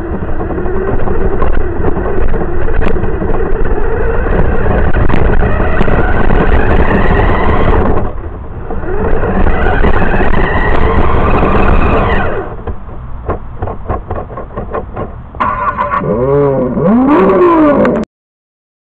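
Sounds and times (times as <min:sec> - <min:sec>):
rc car motor whine: 0:00.0 - 0:12.6.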